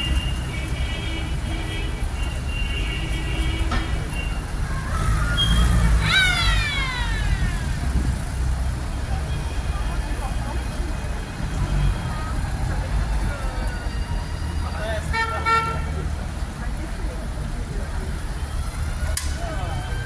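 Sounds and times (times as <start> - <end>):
jeep engines rumbling: 0.0 - 20.0
high call falling in pitch: 5.4 - 7.8.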